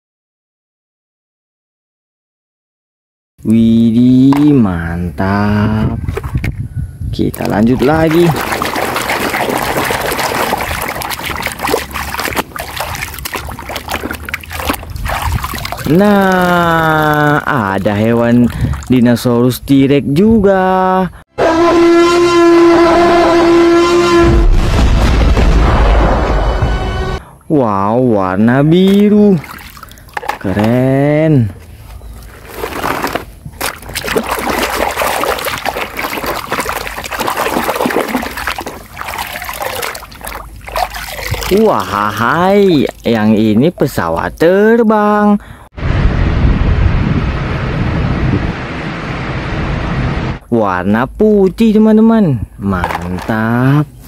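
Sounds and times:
water sloshing in a basin: 7.2s - 19.3s, 28.8s - 44.5s, 52.7s - 54.0s
water dripping: 7.3s - 19.2s, 28.8s - 30.9s, 33.6s - 44.5s
hand scrubbing a toy: 7.5s - 18.9s, 31.6s - 43.3s.

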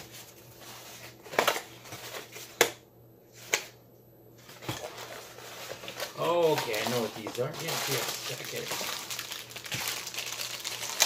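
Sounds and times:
packaging rustling: 4.4s - 11.0s.

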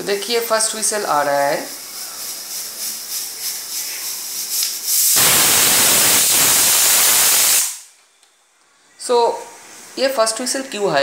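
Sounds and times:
pressure cooker whistle hissing steam: 4.9s - 7.9s.

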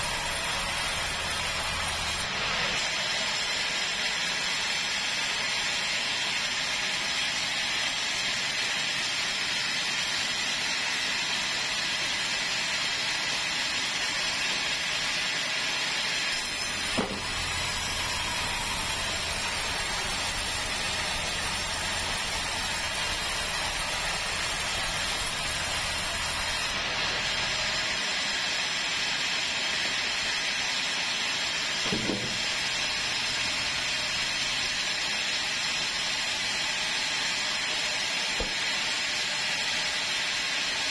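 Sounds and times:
band saw ripping timber: 16.2s - 27.9s.

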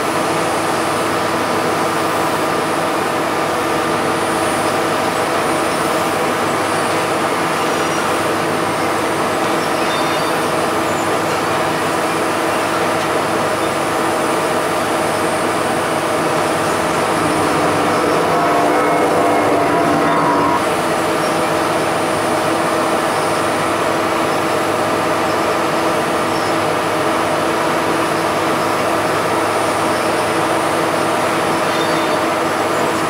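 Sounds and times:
aircraft machinery drone: 0.0s - 33.0s
held whining tones: 13.5s - 21.8s.

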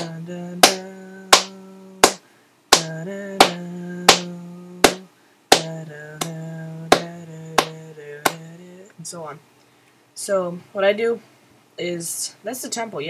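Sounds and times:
person humming: 0.0s - 9.2s.

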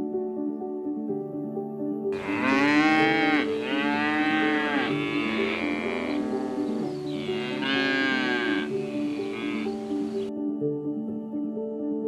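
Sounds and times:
soft background music: 0.0s - 12.0s
bison mooing: 2.2s - 9.8s.

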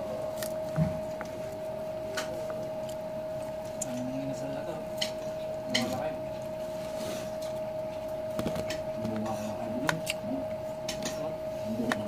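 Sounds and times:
steady high hum: 0.0s - 12.0s
quiet chewing: 0.2s - 4.2s.

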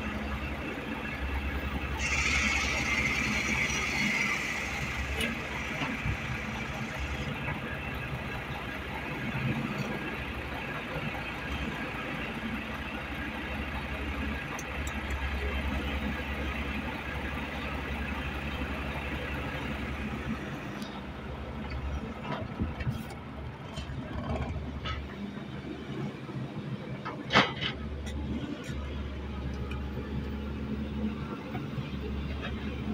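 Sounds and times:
diesel engines droning: 0.0s - 32.9s.

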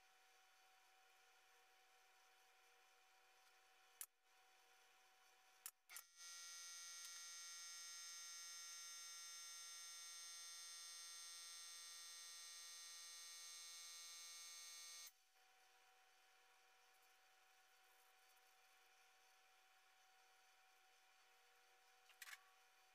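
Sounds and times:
high-pitched electric whine: 6.2s - 15.1s.

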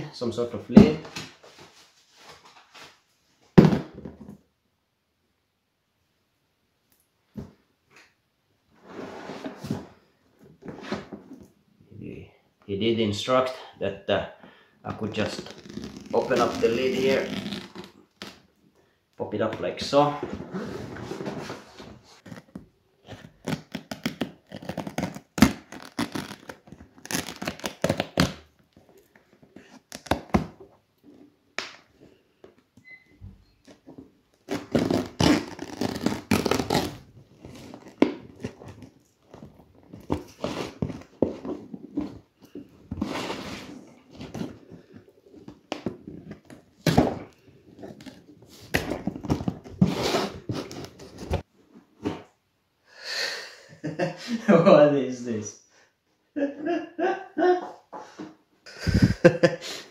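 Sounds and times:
duct tape tearing: 22.2s - 28.5s, 34.5s - 38.9s.

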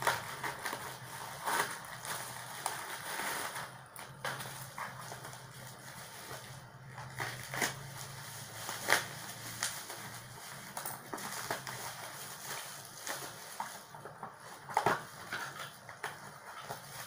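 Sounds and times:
scissors cutting plastic: 0.0s - 5.4s, 6.0s - 13.9s
plastic wrapping crinkling: 0.0s - 17.0s.

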